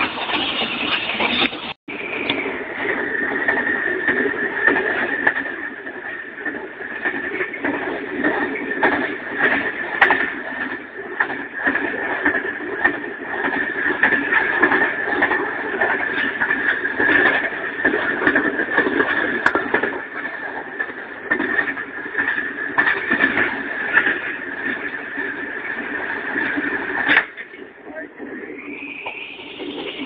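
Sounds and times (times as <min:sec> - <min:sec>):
locomotive running: 0:00.0 - 0:30.0
high whine: 0:21.0 - 0:30.0.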